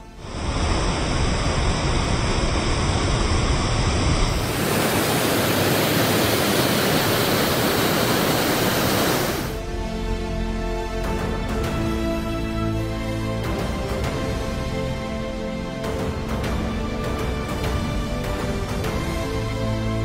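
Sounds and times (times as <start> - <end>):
roar of whitewater: 0.2 - 9.6
background music: 9.6 - 20.0.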